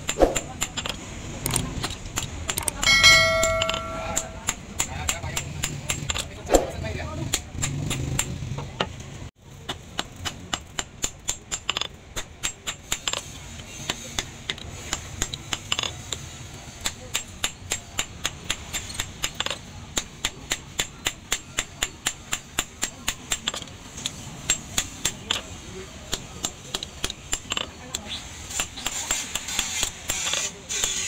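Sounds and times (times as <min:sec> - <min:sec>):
hammer striking metal on anvil: 0:02.7 - 0:06.0.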